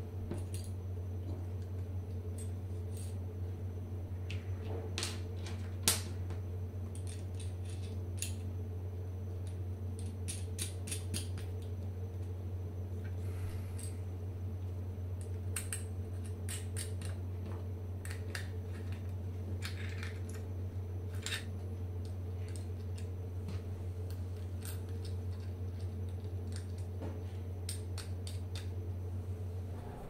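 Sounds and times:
steady low hum: 0.0s - 30.0s
small clicks and clinks of parts: 2.4s - 3.2s, 6.9s - 8.5s, 9.4s - 11.8s, 15.2s - 17.2s, 18.0s - 20.4s, 21.1s - 23.1s, 24.1s - 26.9s, 27.6s - 28.8s.

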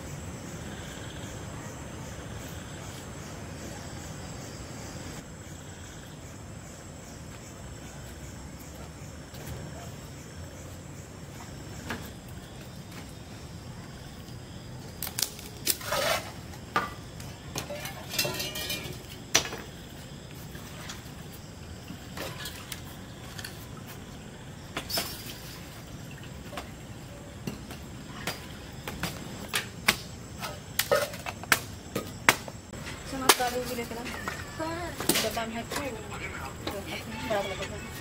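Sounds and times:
steel dishes clinking: 17.8s - 19.1s.

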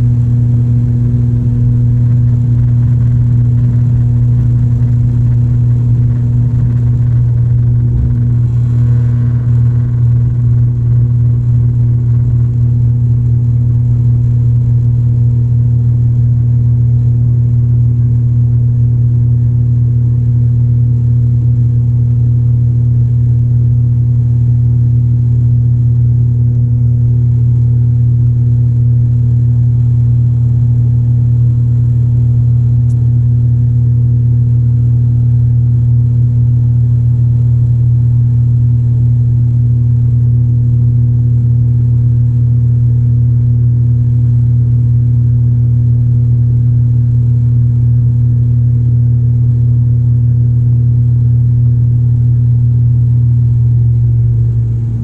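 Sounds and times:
turboprop engine droning: 0.0s - 55.0s.

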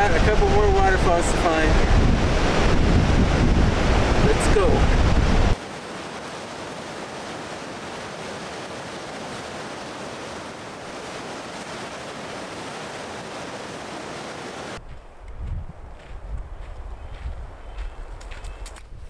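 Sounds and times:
wind buffeting microphone: 0.0s - 5.6s, 14.7s - 19.0s
creek rushing over rocks: 0.0s - 14.8s.

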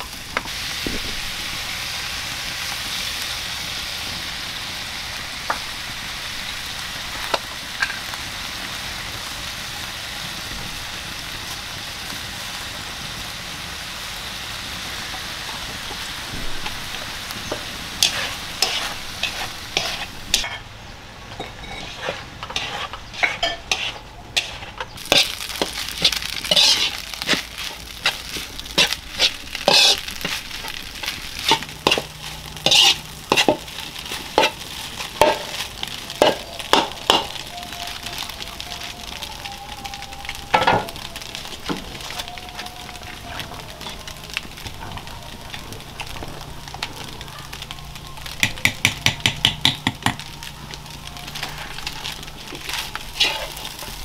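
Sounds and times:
fish sizzling in wok: 0.0s - 54.0s
metal spatula scraping wok: 16.0s - 38.9s, 50.2s - 54.0s.

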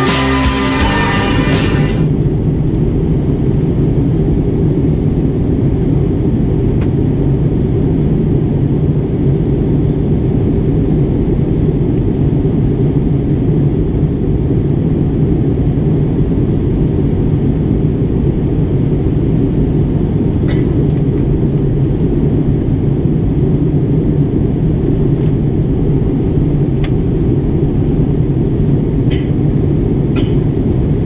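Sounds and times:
airliner cabin engine rumble: 0.0s - 31.0s.

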